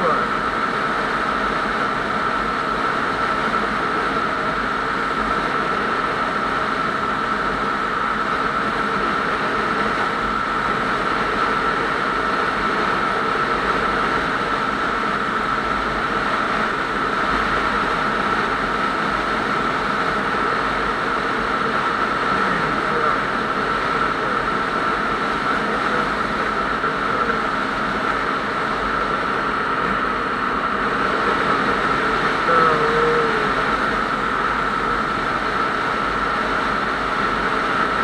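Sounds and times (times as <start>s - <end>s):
road and engine noise: 0.0s - 38.0s
steady high-pitched whine: 0.0s - 38.0s.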